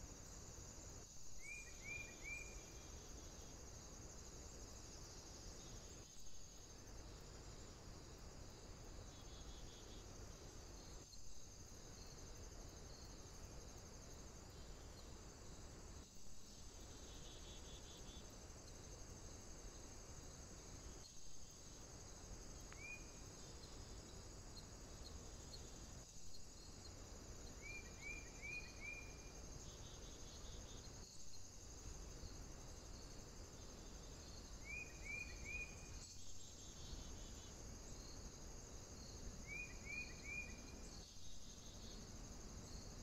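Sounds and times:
insect chorus: 0.0 - 43.0.

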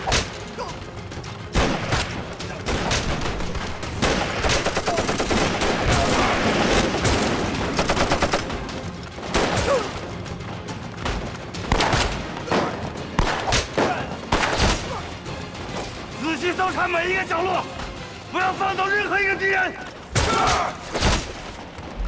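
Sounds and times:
gunfire: 1.5 - 10.0, 11.0 - 15.0, 20.1 - 21.8.

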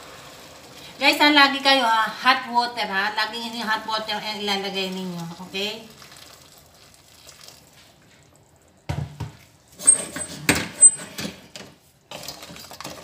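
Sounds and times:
water pouring into a steel pot: 0.0 - 1.8, 4.7 - 8.5.

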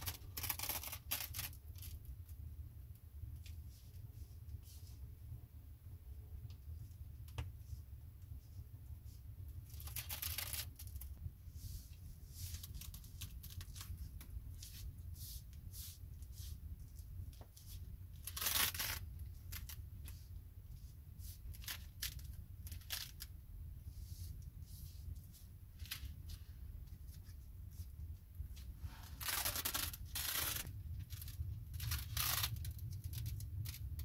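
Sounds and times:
adhesive tape ripping off roll: 0.0 - 2.0, 9.7 - 11.1, 18.2 - 19.8, 28.9 - 34.0.

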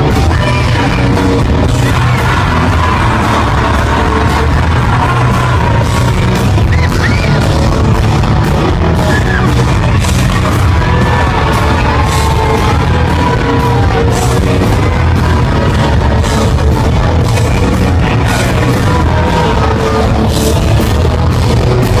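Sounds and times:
person singing: 0.0 - 7.2, 9.0 - 22.0
live rock band playing: 0.0 - 22.0.

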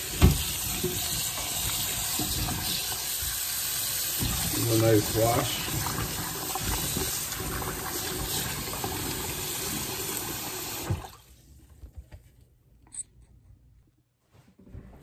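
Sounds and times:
tap water splashing into pot: 0.0 - 11.2.

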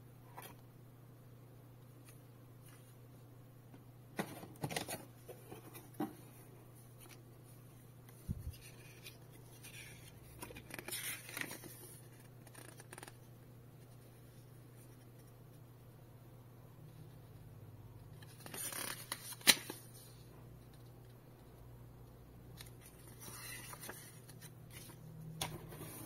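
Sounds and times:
pages being leafed through: 8.1 - 13.2, 18.2 - 20.0, 22.6 - 26.0
paper crackling and rustling: 8.1 - 13.2, 18.2 - 20.0, 22.6 - 26.0.

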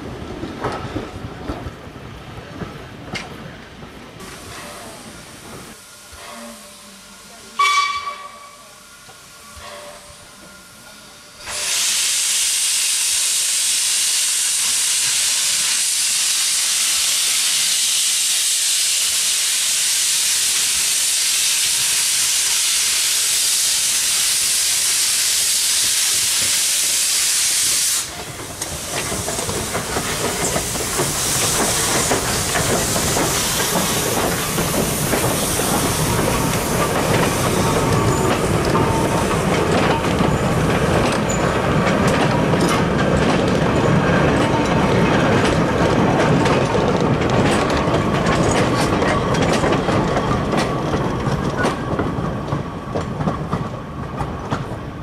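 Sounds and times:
steam hissing from locomotive: 4.2 - 43.0
wheels clicking on rails: 28.0 - 55.0.

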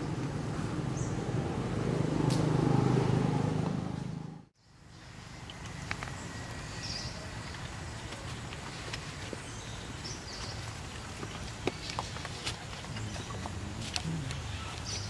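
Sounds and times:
passing vehicle engine rumble: 0.0 - 4.5.

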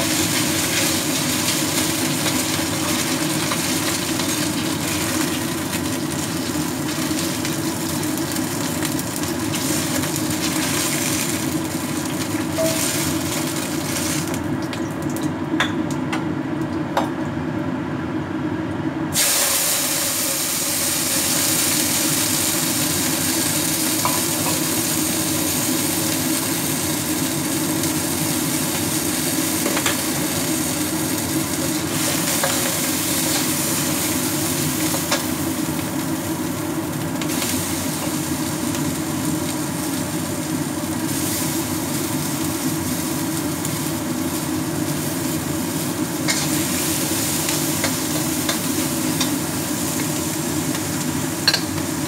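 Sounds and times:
water boiling in a wok: 0.0 - 16.0, 19.0 - 52.0.

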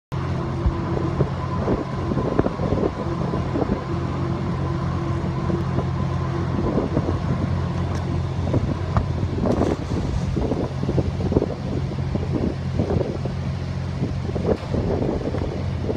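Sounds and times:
heavy machinery low drone: 0.1 - 15.9.

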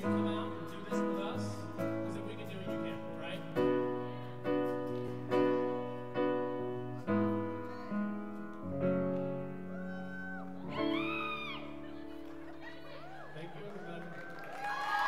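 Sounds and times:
piano chords ringing: 0.0 - 14.4.

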